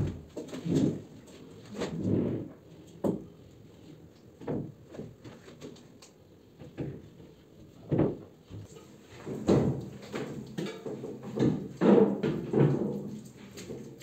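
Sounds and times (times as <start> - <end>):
gypsum board knocks and bumps: 4.4 - 5.4, 6.6 - 14.0.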